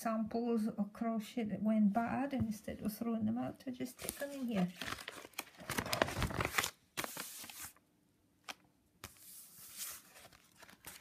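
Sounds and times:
paper and plastic rustling: 0:03.9 - 0:07.8, 0:08.5 - 0:11.0.

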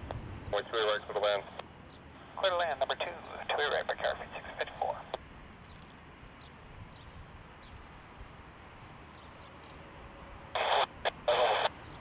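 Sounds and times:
background rumble and hiss: 0:00.0 - 0:12.0
radio scanner static bursts: 0:02.2 - 0:05.2, 0:10.5 - 0:11.9.

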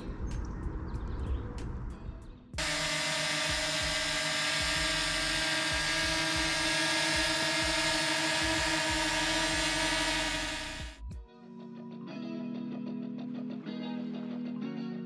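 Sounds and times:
drone propellers whining: 0:02.6 - 0:11.0.

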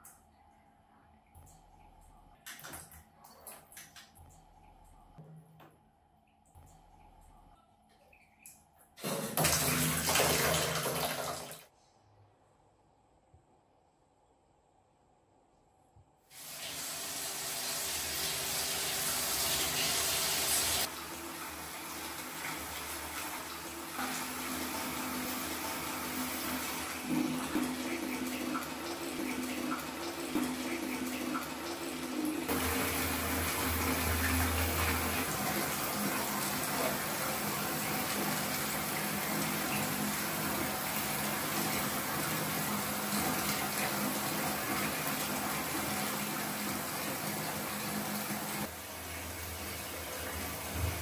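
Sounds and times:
water running from a tap: 0:09.0 - 0:11.7, 0:16.3 - 0:51.0.

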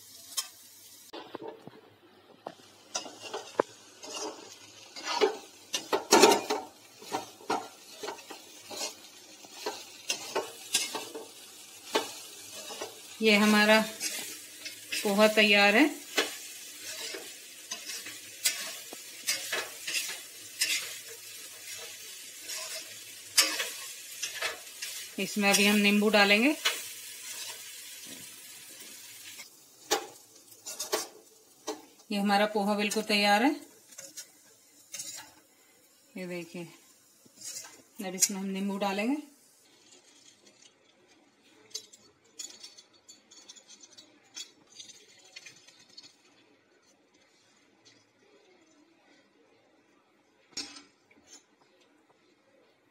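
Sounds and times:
kitchen utensils clinking: 0:02.8 - 0:32.1, 0:33.8 - 0:35.4, 0:37.4 - 0:38.9, 0:39.8 - 0:46.5
spoon scraping steel pan: 0:02.9 - 0:15.3, 0:16.0 - 0:25.9, 0:34.9 - 0:35.4, 0:37.4 - 0:38.4.

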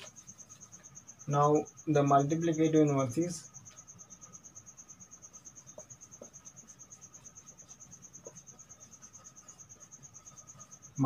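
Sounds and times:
marker squeaking on whiteboard: 0:00.0 - 0:01.2, 0:03.6 - 0:11.0
cricket chirping: 0:00.0 - 0:11.0.

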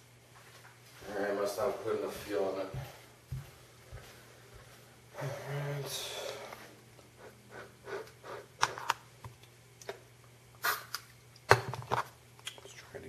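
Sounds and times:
steady low hum: 0:00.0 - 0:13.0
brief gas hiss: 0:10.6 - 0:11.0.

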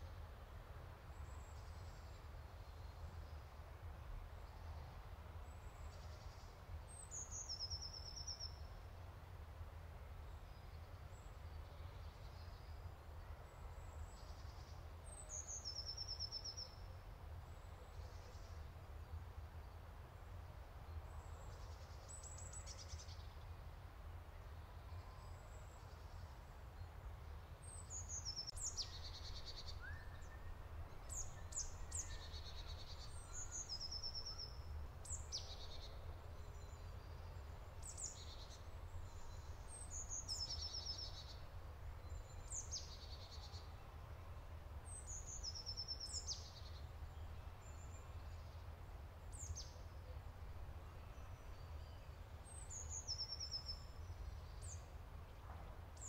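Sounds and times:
songbirds singing trills: 0:04.4 - 0:08.8, 0:10.3 - 0:19.9, 0:24.5 - 0:44.0, 0:44.8 - 0:56.0.

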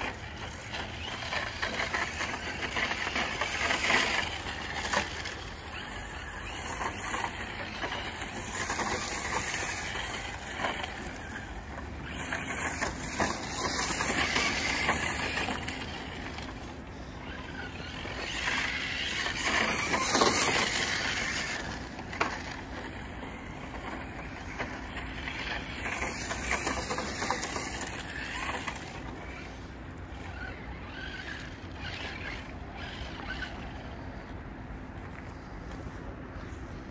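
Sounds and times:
electric motor whine: 0:00.0 - 0:34.4
tyres crunching on gravel: 0:00.0 - 0:36.9.

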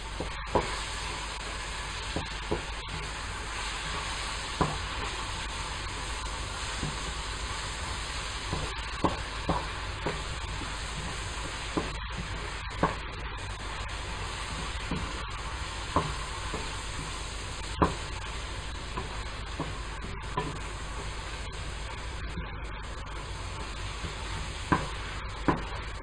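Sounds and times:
food sizzling in a frying pan: 0:00.0 - 0:26.0.

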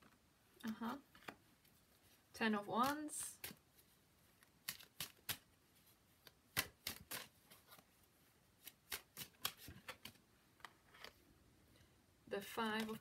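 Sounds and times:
cards being shuffled: 0:02.7 - 0:07.9, 0:08.6 - 0:11.2, 0:12.4 - 0:13.0.

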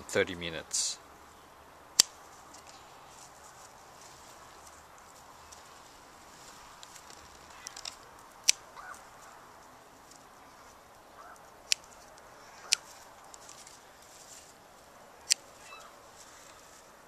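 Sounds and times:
pruning scissors snipping: 0:02.0 - 0:02.8, 0:06.9 - 0:09.0, 0:11.3 - 0:13.8, 0:15.2 - 0:15.6.

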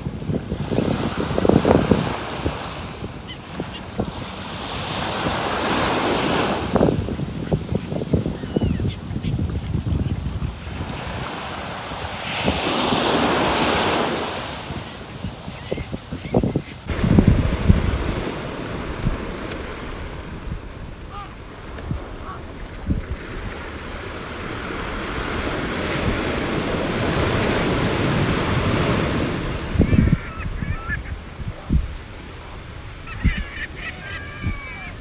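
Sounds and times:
surf washing in: 0:00.0 - 0:35.0
wind buffeting microphone: 0:00.0 - 0:35.0
faint bird calls: 0:07.4 - 0:10.2, 0:33.0 - 0:35.0.

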